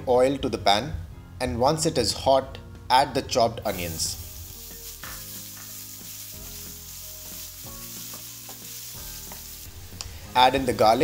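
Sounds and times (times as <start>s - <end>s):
onions sizzling in oil: 3.7s - 11.0s.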